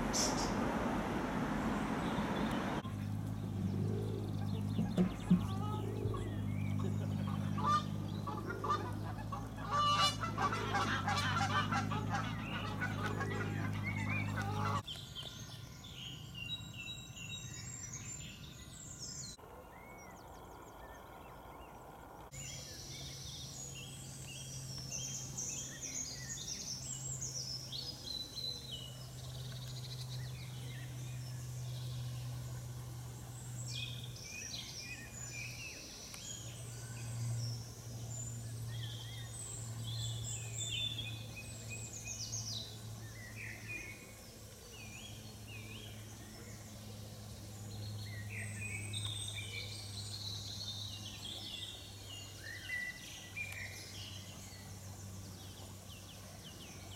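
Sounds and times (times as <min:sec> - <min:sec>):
high bird calls and song: 0:00.0 - 0:00.7, 0:01.6 - 0:56.9
steady low hum: 0:00.0 - 0:14.8, 0:15.4 - 0:56.9
honking bird calls: 0:01.9 - 0:14.9.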